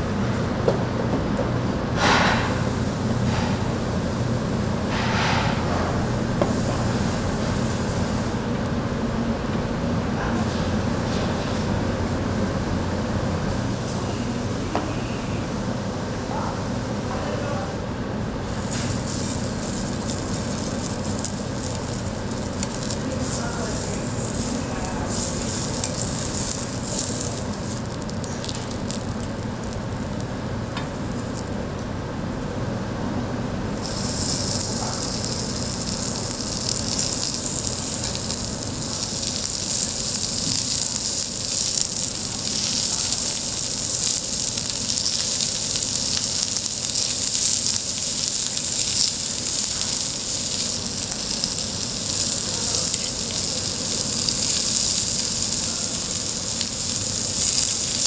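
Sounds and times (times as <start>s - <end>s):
food sizzling on a grill: 2.0s - 3.6s, 4.9s - 8.4s, 18.4s - 31.6s, 33.7s - 58.0s.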